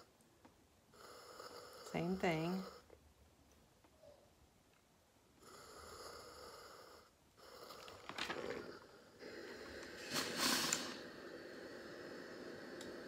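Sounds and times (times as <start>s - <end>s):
steam hissing: 8.6s - 13.0s.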